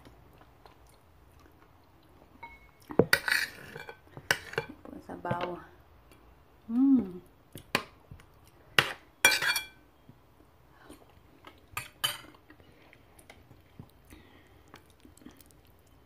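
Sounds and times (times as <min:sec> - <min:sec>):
cutlery clinking on a plate: 0:08.8 - 0:09.8, 0:11.8 - 0:12.3.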